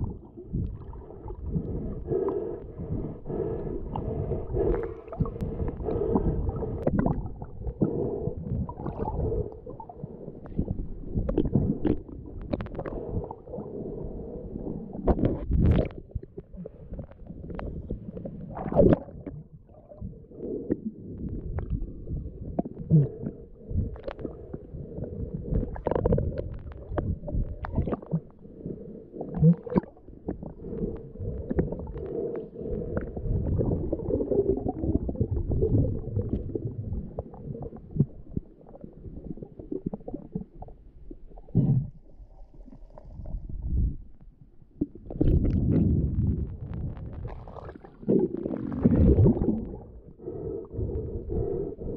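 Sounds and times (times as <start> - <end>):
muffled underwater sloshing: 0.0 - 51.9
knocks and gurgles: 15.0 - 19.5, 44.8 - 49.9.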